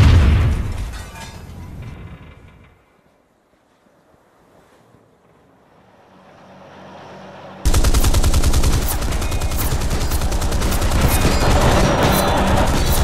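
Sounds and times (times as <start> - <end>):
rapid machine-gun fire: 7.7 - 13.0.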